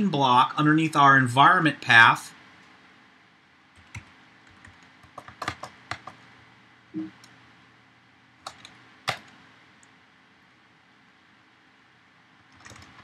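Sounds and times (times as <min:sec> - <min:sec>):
computer keyboard keystrokes: 0:03.8 - 0:06.2, 0:08.4 - 0:09.4, 0:12.5 - 0:13.0.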